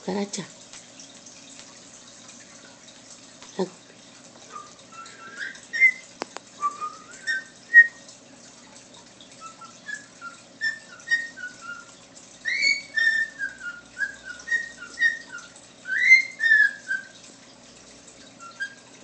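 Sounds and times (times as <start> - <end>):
cockatiel whistling: 4.5 - 6.0, 6.6 - 8.0, 9.4 - 17.2, 18.4 - 18.9.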